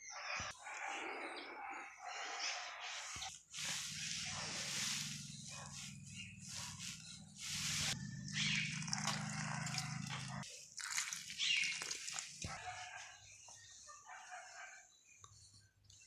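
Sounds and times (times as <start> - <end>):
rooster crowing: 8.0 - 10.4.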